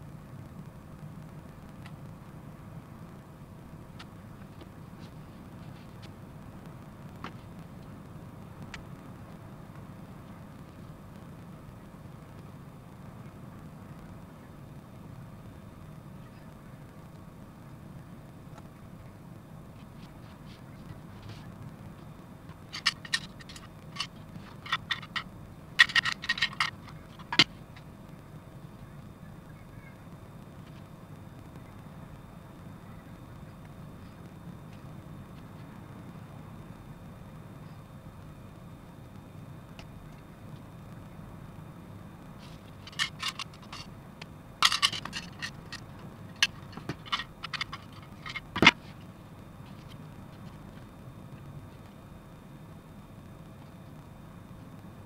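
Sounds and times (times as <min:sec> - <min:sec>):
plastic parts clicking in plastic box: 0:22.7 - 0:27.5, 0:42.8 - 0:43.9, 0:44.6 - 0:48.8.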